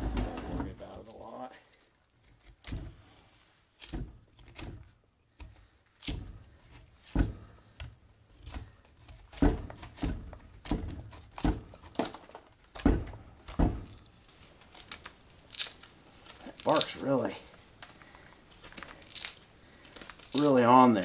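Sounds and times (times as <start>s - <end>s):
bark tearing snaps: 14.7s - 17.0s.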